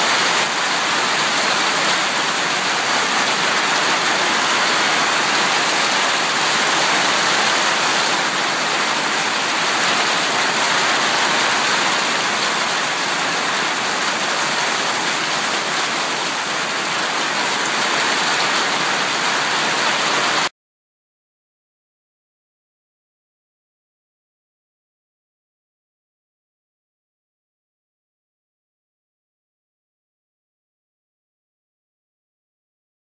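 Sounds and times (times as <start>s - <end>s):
hail and heavy rain falling: 0.0s - 20.5s.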